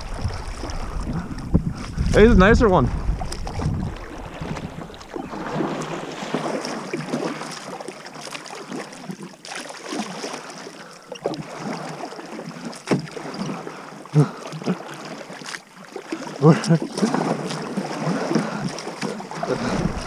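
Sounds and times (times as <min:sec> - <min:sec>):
paddle splashing in water: 0:00.0 - 0:20.0
water running off paddle: 0:00.0 - 0:20.0.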